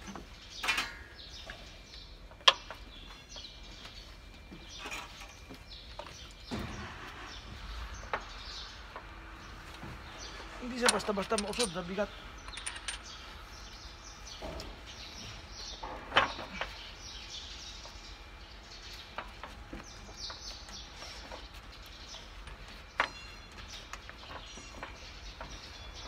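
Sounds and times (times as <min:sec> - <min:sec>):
birds chirping faintly: 0:00.0 - 0:26.0
metal clinks and knocks: 0:10.7 - 0:13.2, 0:22.2 - 0:26.0.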